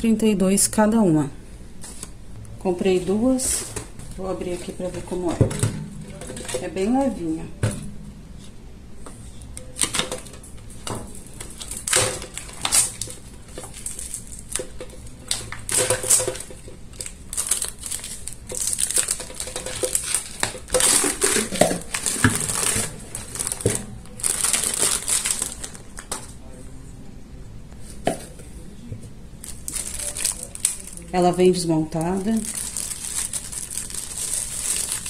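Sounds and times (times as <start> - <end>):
plastic wrapping crinkling: 9.6 - 26.4, 29.4 - 35.0.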